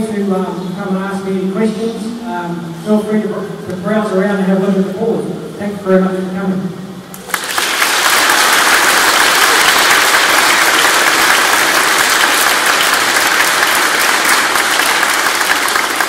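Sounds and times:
audience applauding: 7.2s - 16.0s.

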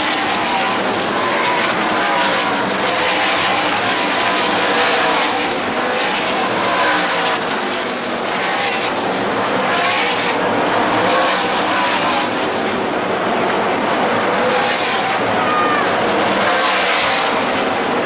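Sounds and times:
race truck engines passing: 0.0s - 18.0s.

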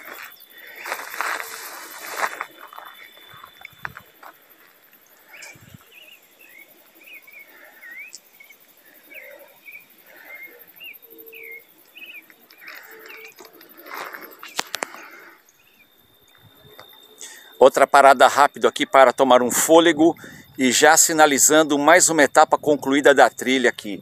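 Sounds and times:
bird singing: 2.1s - 19.4s.

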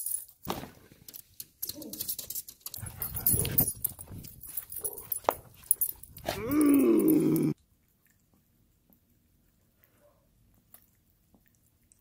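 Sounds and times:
dogs scuffling and clicking: 1.0s - 6.6s.

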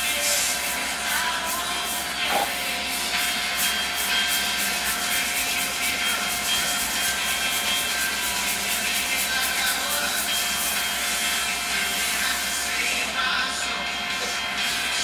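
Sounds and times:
music with steady beat: 0.0s - 15.0s.

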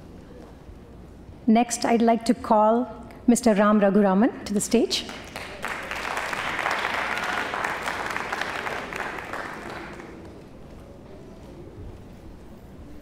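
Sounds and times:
audience applauding: 5.2s - 10.6s.

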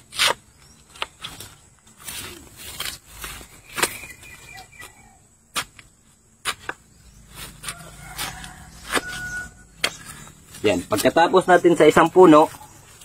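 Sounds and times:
digging tool chopping into soil: 2.2s - 11.2s.

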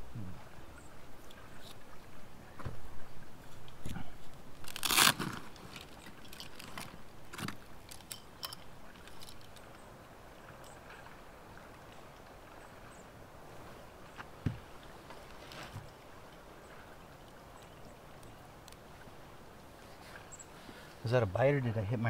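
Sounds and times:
crunching and clicking handling noises: 4.6s - 9.6s.

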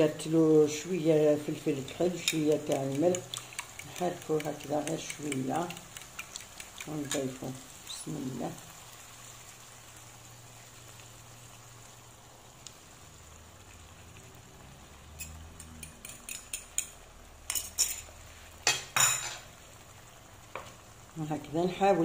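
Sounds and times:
faint sizzling in a pan: 0.0s - 22.0s.

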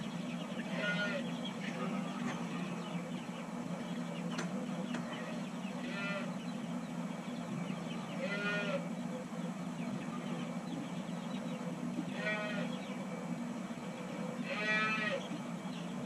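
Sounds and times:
steady low hum: 0.0s - 16.0s
calves bawling: 0.4s - 6.5s, 8.0s - 9.0s, 12.0s - 13.0s, 14.0s - 15.6s.

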